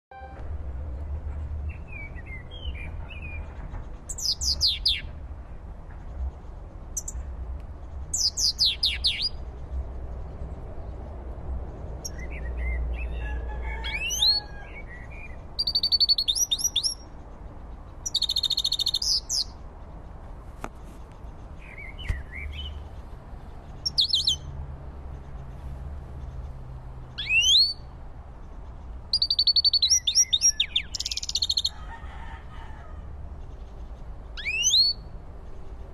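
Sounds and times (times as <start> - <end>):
bird twittering chirps and trills: 1.6 - 11.1, 11.7 - 20.2, 20.8 - 31.8, 33.4 - 35.9.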